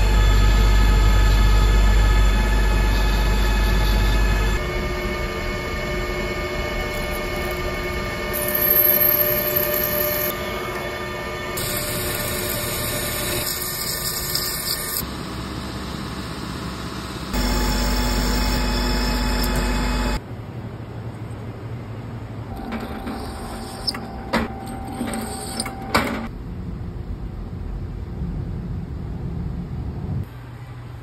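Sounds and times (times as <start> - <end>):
lathe motor whine: 0.0 - 20.2, 22.5 - 26.3
low hum: 0.0 - 30.9
hiss of metal cutting: 11.6 - 15.0.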